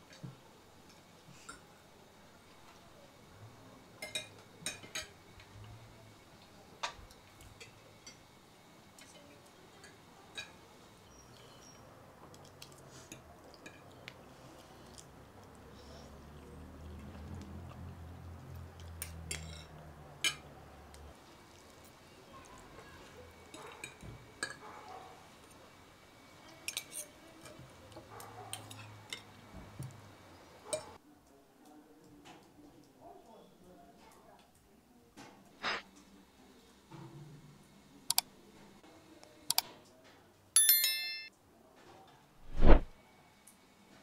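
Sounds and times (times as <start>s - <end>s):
dishes and utensils clinking: 4.0s - 5.2s, 19.0s - 20.5s, 40.6s - 41.3s.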